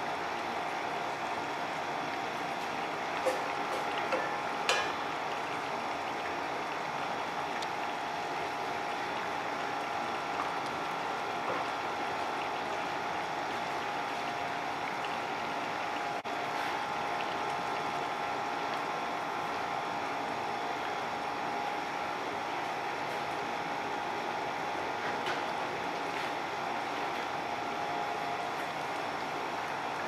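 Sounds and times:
steady hum: 0.0 - 30.0
sauce simmering in a pot: 0.3 - 20.0.

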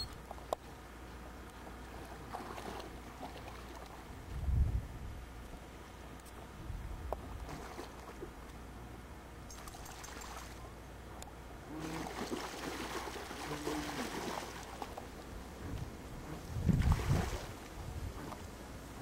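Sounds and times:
water splashing and trickling: 0.0 - 4.5, 7.2 - 8.6, 9.5 - 10.7, 11.6 - 19.0.

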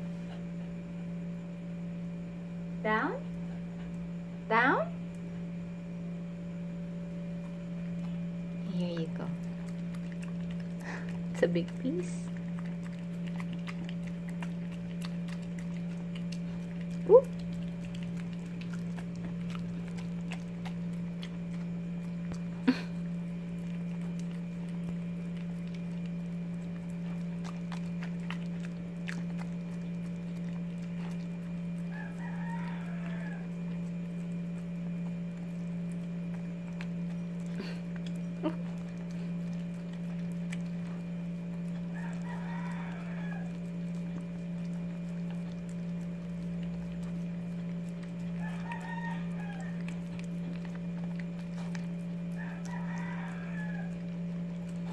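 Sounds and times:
low electrical hum: 0.0 - 54.9
distant rooster crowing: 31.6 - 34.3, 41.6 - 44.2, 47.3 - 50.4, 52.0 - 54.6.

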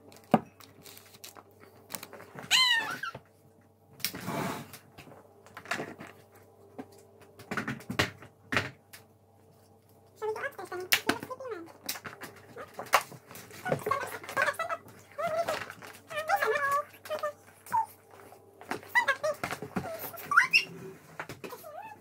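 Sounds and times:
toddler squealing: 2.5 - 3.2.

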